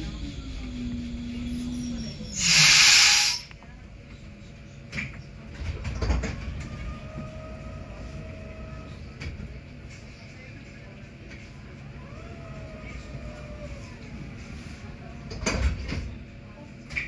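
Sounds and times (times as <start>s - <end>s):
loud air hiss: 2.4s - 3.5s.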